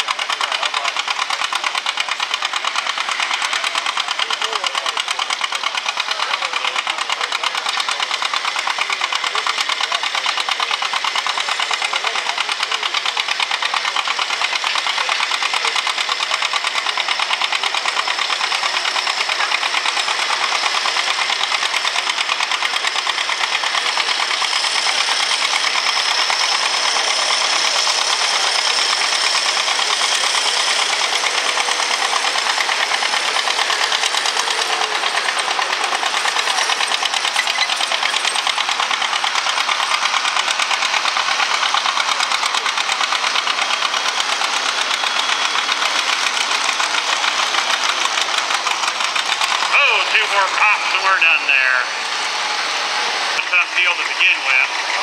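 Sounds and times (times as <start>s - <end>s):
tractor engine under load: 0.0s - 55.0s.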